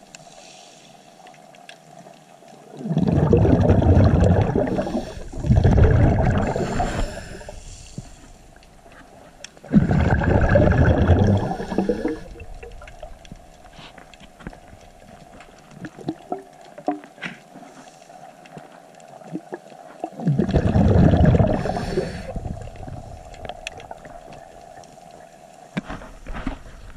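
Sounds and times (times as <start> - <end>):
faint clicks and crackles: 0.0 - 26.9
regulator bubbles gurgling underwater: 2.5 - 17.2, 18.1 - 25.8.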